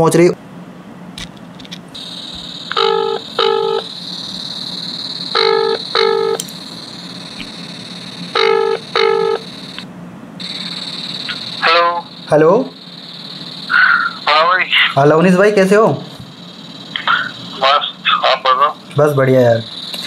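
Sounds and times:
steady high hiss: 1.9s - 20.0s
telephone ringback tone beeps: 2.0s - 9.8s.

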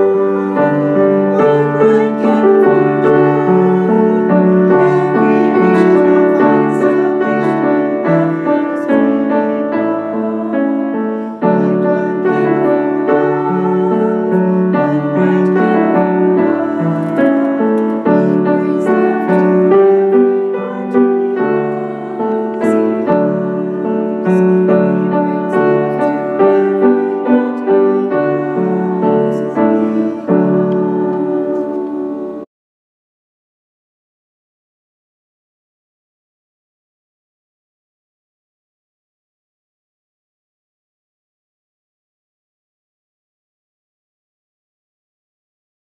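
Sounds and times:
piano playing chords: 0.0s - 32.5s.

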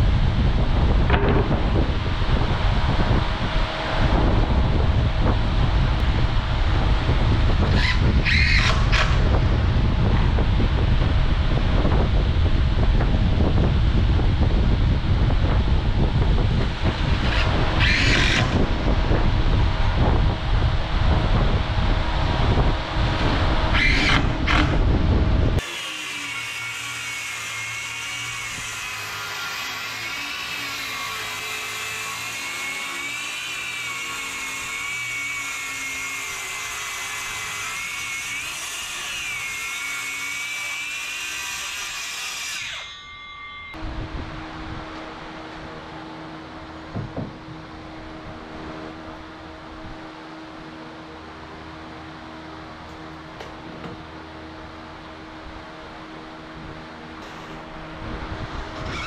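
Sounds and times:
fan-blown air on microphone: 0.0s - 42.8s, 43.7s - 59.0s
circular saw blade whining: 0.5s - 13.5s, 15.7s - 20.3s, 22.5s - 25.0s, 25.6s - 46.9s, 56.8s - 59.0s
saw blade winding down: 17.2s - 18.6s, 25.6s - 43.8s.

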